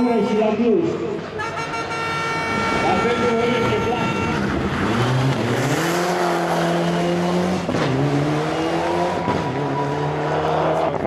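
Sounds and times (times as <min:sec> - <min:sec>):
rally car engine revving: 0:02.5 - 0:11.0.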